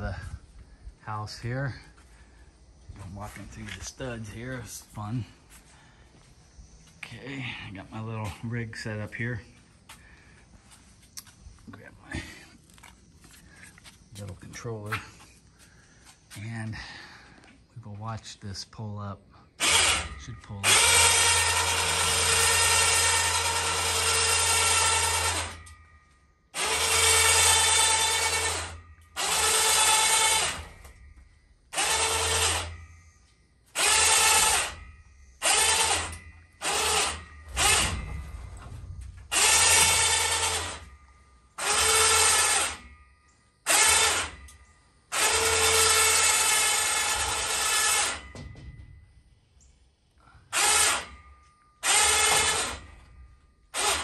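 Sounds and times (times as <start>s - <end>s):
electric winch motor whining: 19.6s - 49.1s, 50.2s - 54.0s.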